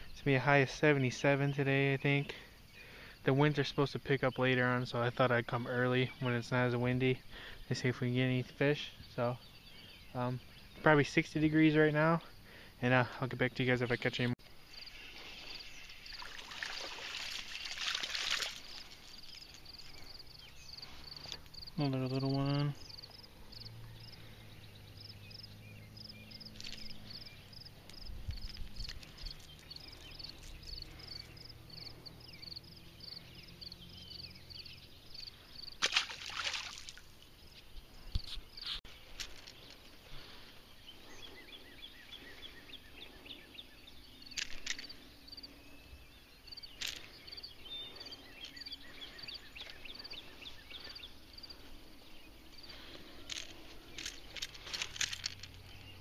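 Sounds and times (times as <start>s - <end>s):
sharp rustling bursts: 14.9s - 19.9s, 51.5s - 56.0s.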